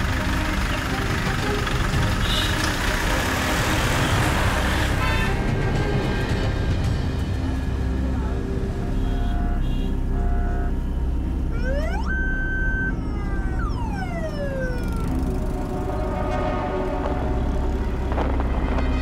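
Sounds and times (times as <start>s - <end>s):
road noise inside a van: 0.0s - 19.0s
police siren wailing: 8.6s - 18.4s.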